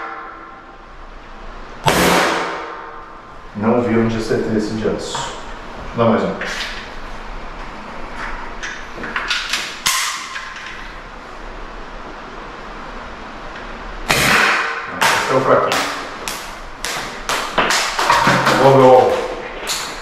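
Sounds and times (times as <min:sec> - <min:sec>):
air pistol shot: 0:01.8 - 0:03.0, 0:14.1 - 0:16.0.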